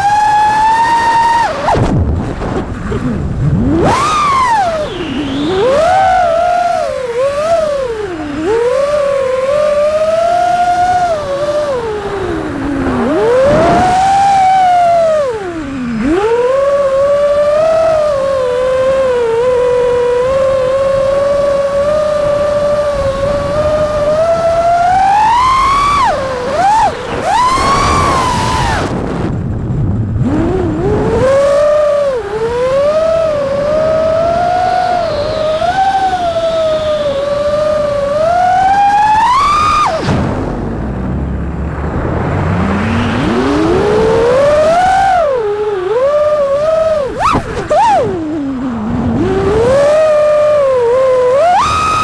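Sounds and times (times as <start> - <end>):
quadcopter motors whining: 0.0 - 1.9, 2.6 - 29.4, 30.2 - 41.4, 42.2 - 52.0
rush of air: 39.2 - 45.3.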